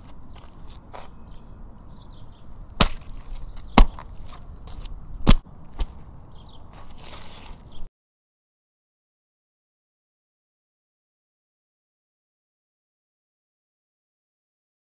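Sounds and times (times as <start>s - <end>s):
small crunches: 0.0s - 1.1s, 2.3s - 6.1s, 6.7s - 7.9s
sneaker stomping on wet pavement: 2.8s - 6.0s.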